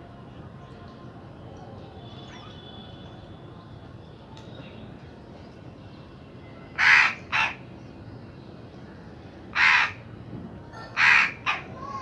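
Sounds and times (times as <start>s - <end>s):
crow cawing: 6.8s - 7.6s, 9.6s - 10.0s, 10.8s - 12.0s.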